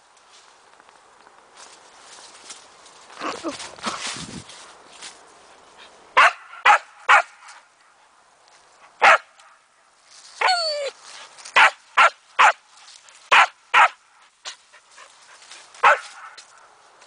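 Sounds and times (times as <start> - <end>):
dog barking: 6.2 - 7.3, 9.0 - 9.3, 11.6 - 12.6, 13.3 - 14.0, 15.8 - 16.4
dog whining cry: 10.4 - 11.0.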